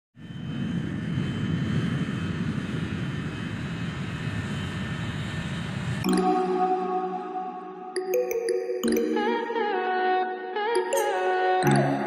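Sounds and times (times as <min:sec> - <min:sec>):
jet engine low rumble: 0:00.2 - 0:06.0.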